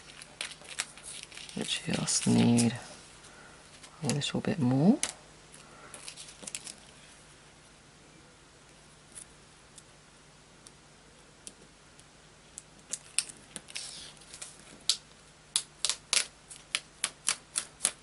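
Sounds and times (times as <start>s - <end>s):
sharp crisp clicks and crackles: 10.6s - 18.0s.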